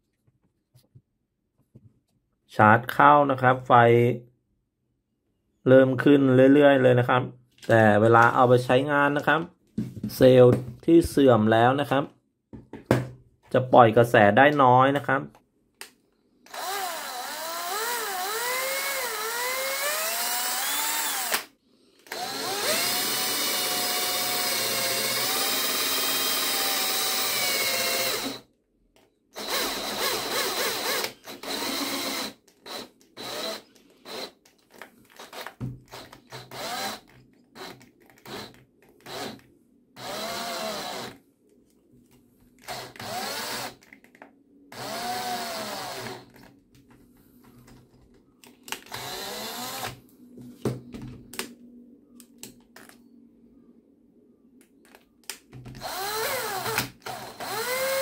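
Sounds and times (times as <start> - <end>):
cordless drill whining into wood: 16.4 - 28.4, 29.4 - 39.4, 40.0 - 41.2, 42.6 - 43.9, 44.7 - 46.5, 48.8 - 50.0, 55.8 - 58.0.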